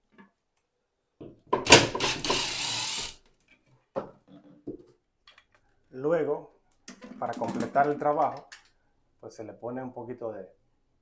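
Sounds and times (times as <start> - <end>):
power drill running: 1.7 - 3.2.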